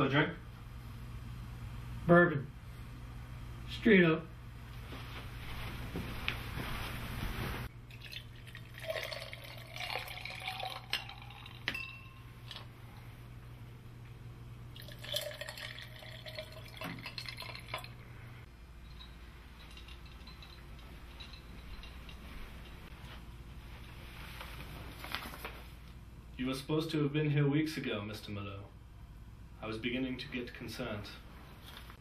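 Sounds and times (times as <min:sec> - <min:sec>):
glass clinking: 0:07.9 - 0:12.7, 0:14.8 - 0:17.9, 0:18.8 - 0:22.9
liquor pouring into glasses: 0:07.9 - 0:12.7, 0:14.7 - 0:18.0.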